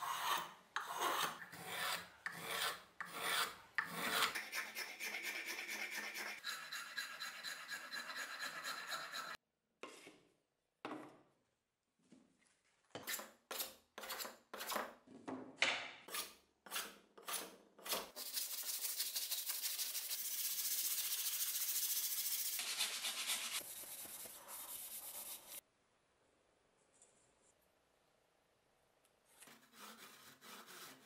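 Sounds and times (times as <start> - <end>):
sandpaper rubbing wood: 18.2 - 25.6, 29.6 - 31.0.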